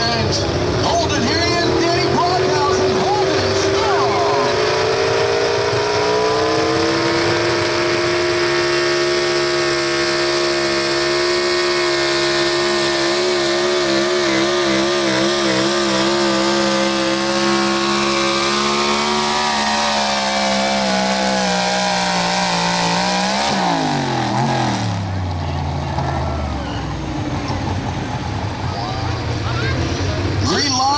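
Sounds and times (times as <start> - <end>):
truck engine at high revs: 0.0 - 30.9.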